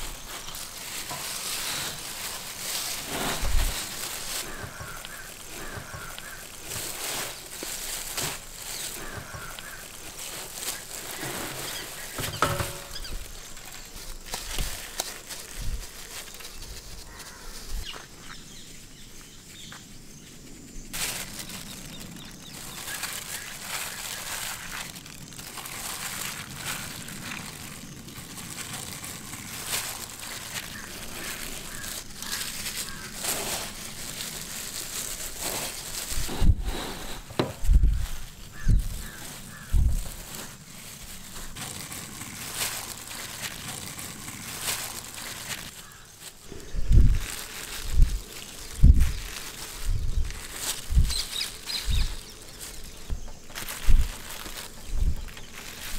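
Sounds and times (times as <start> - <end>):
bread crumbs rustling and crunching: 0.0 - 18.4, 20.9 - 55.9.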